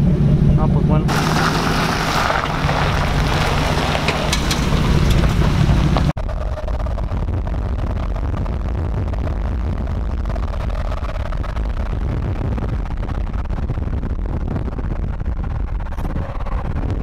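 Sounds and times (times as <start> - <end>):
truck engine droning: 0.0 - 6.8
road and wind noise inside vehicle: 0.0 - 17.0.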